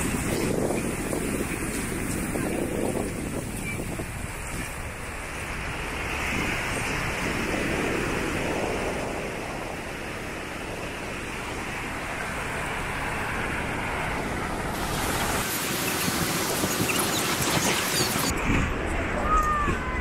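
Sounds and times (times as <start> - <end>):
surf washing on sandy beach: 0.0 - 19.2
wind on microphone: 0.0 - 20.0.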